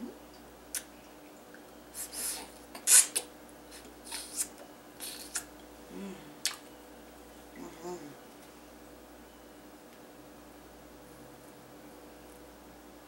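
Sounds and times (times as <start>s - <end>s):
wet mouth smacks: 0.7s - 0.9s, 2.7s - 5.6s, 6.4s - 6.6s.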